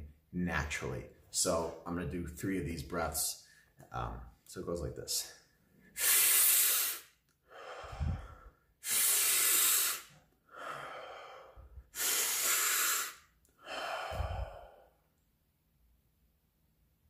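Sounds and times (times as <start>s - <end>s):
man breathing forcefully: 5.9s - 15.0s
puff of air on microphone: 7.8s - 10.1s.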